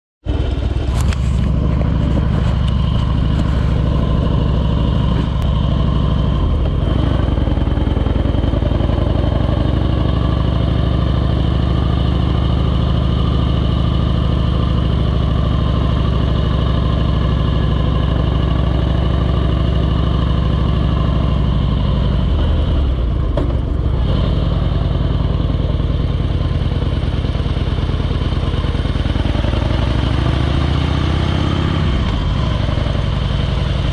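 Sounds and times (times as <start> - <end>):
motorcycle engine running: 0.2 - 33.9.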